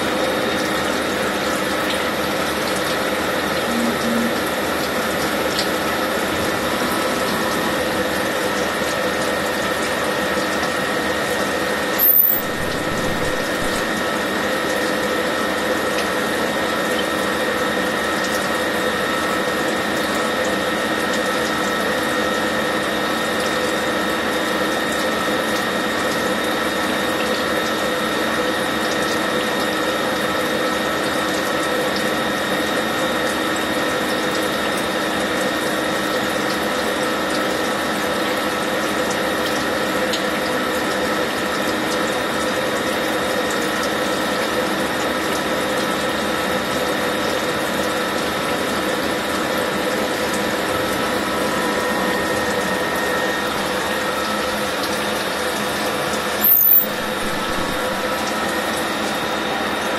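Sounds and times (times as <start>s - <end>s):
milling machine whine: 0.0s - 34.1s, 47.9s - 59.9s
coolant pouring and splashing: 0.0s - 59.9s.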